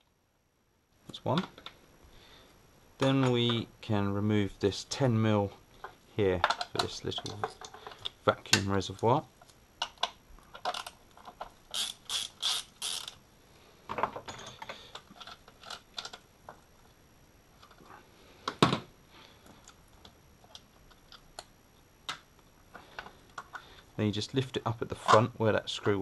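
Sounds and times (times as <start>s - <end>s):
tools and plastic parts clicking: 6.4s - 8.2s, 9.8s - 13.2s, 13.9s - 16.3s
socket ratchet clicking: 11.7s - 13.2s.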